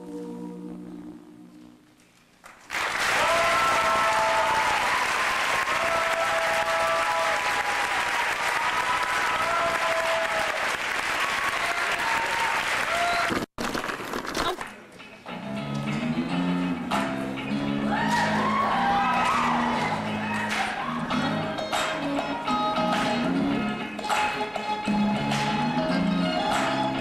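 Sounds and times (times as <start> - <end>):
audience applauding and cheering: 2.5 - 13.5, 17.8 - 21.2.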